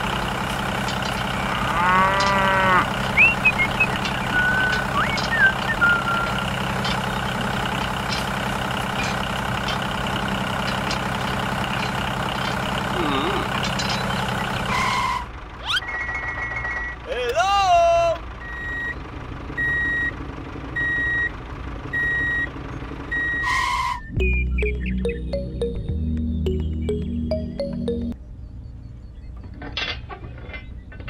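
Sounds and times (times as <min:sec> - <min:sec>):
tractor engine idling: 0:00.0 - 0:28.2
cow mooing: 0:01.3 - 0:03.9.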